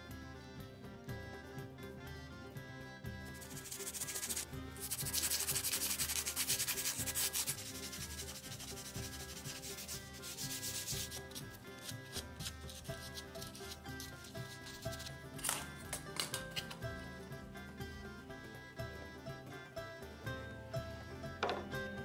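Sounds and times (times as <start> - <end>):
hand sanding wood: 3.4 - 15.1.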